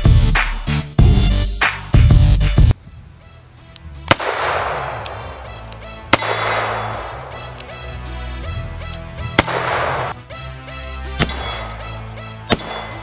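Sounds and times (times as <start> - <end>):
background music with bass line: 0.0 - 13.0
revolver gunshots with echo: 4.1 - 7.6, 9.3 - 10.2, 11.2 - 11.7, 12.5 - 13.0.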